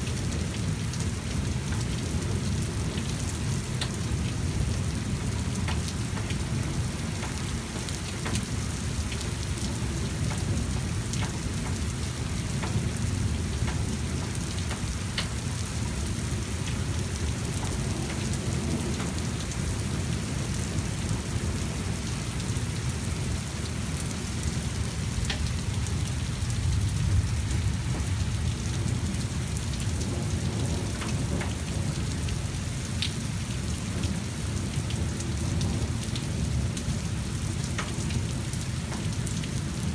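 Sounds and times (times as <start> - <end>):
steady rain: 0.0 - 39.9
raindrops ticking close by: 0.1 - 39.9
thunder rumbling: 25.6 - 32.4.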